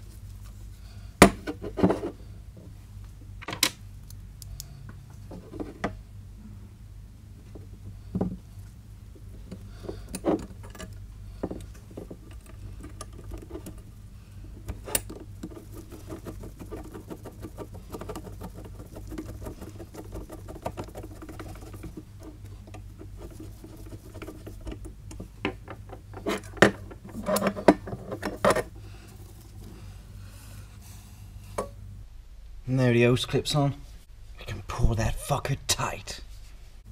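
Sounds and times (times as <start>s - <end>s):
knocks and scrapes: 5.2s - 6.0s, 14.6s - 29.8s.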